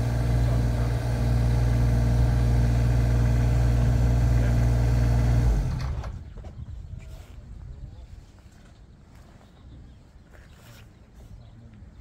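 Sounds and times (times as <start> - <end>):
diesel engine idling: 0.0 - 6.3.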